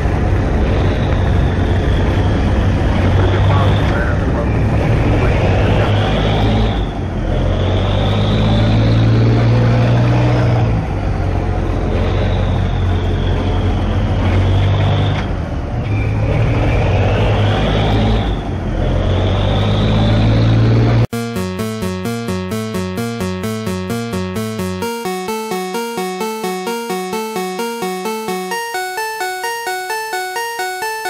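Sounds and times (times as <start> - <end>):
ship engine droning: 0.0 - 31.0
whistling tone: 0.8 - 2.7.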